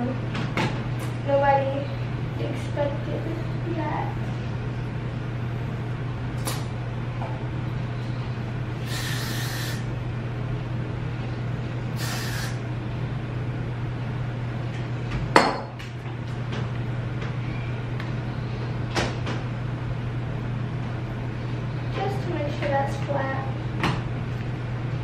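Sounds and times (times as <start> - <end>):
steady low hum: 0.0 - 25.0
aerosol can spraying: 8.8 - 9.8, 12.0 - 12.6.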